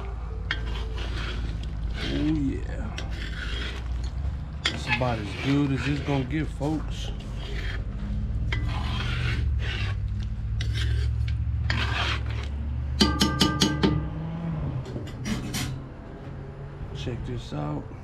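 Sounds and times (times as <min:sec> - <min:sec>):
metal utensil scraping in pot: 0:00.0 - 0:14.1, 0:14.8 - 0:15.9
metal clinking against pot: 0:13.0 - 0:14.1.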